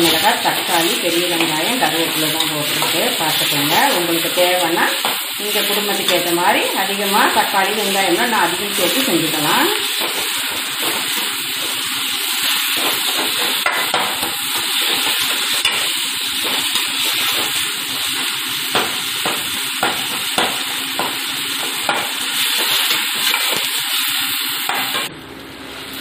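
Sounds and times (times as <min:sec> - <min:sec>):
vegetables sizzling in a pan: 0:00.0 - 0:26.0.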